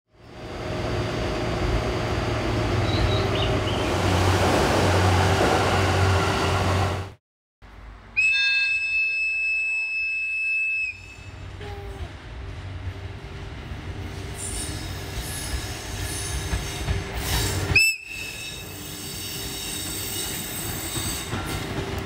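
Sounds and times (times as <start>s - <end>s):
train rushing by: 0.1s - 7.2s, 7.8s - 22.0s
train whistle blast: 8.2s - 11.5s, 17.7s - 19.7s.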